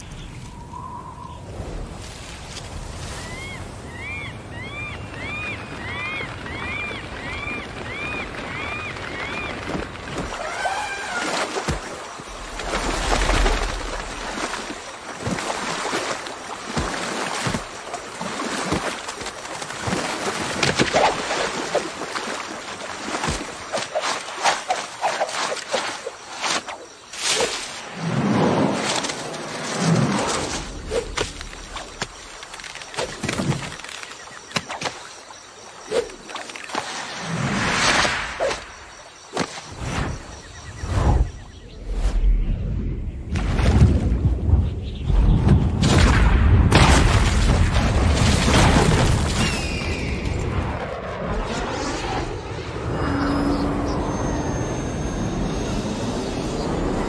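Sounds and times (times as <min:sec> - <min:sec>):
faint jungle ambience: 0:00.0 - 0:57.0
water rushing and sloshing: 0:00.0 - 0:57.0
leaf rustles: 0:01.4 - 0:03.9, 0:07.0 - 0:38.7
taps and creaks of branches: 0:31.0 - 0:35.1.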